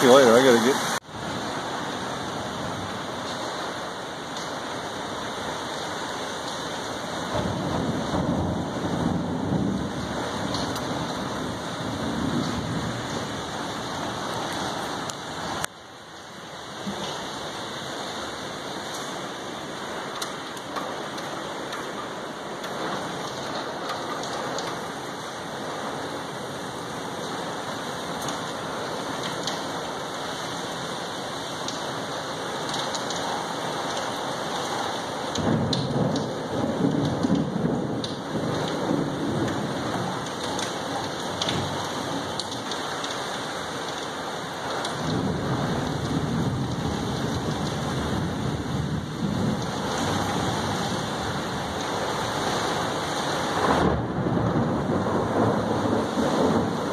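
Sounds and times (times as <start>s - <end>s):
heavy rain: 0.0s - 56.9s
thunder rolling: 6.6s - 15.6s, 35.4s - 42.8s, 44.8s - 56.9s.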